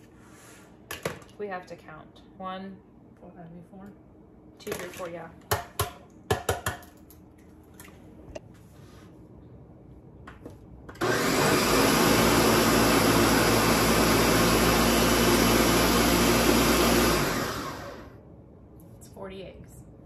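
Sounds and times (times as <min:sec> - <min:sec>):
blender running: 0:11.0 - 0:18.2.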